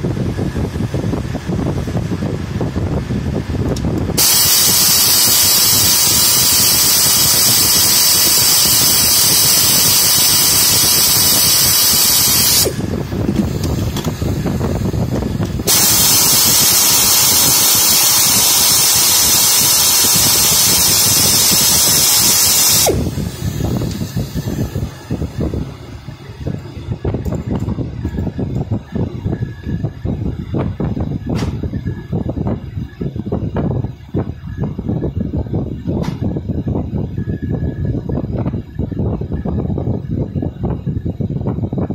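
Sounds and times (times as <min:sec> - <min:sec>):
compressed air hissing from blow gun: 0:04.2 - 0:25.1.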